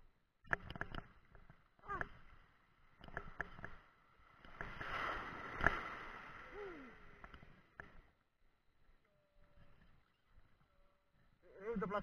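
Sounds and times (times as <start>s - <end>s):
water sloshing and splashing: 4.2s - 7.7s
short falling vocal sound: 6.4s - 7.1s.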